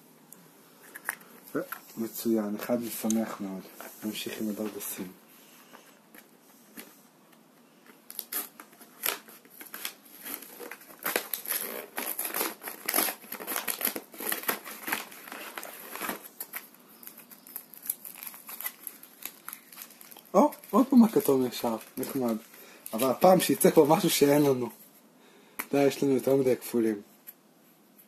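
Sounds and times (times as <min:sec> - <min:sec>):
foil wrapper crinkling: 0:07.8 - 0:24.6
cardboard box tearing: 0:08.2 - 0:16.3.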